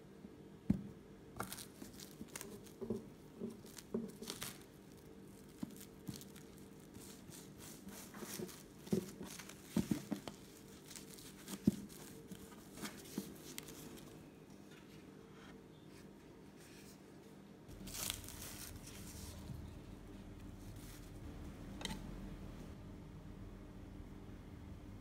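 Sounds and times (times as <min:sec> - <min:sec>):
cling film crinkling: 0:01.4 - 0:14.2, 0:17.7 - 0:19.8.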